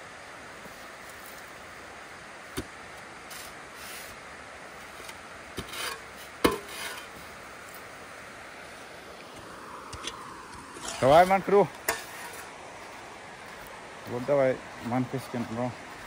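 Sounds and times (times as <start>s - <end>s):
steady background hiss: 0.0s - 16.0s
sand thrown into metal trolley: 2.6s - 4.2s, 10.7s - 12.5s
shovels scraping into sand: 3.2s - 4.2s, 4.8s - 7.2s, 9.9s - 12.6s.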